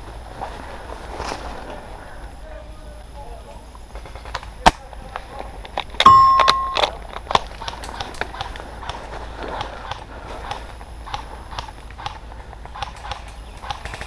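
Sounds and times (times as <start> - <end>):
metallic knock with ring: 6.1 - 6.9.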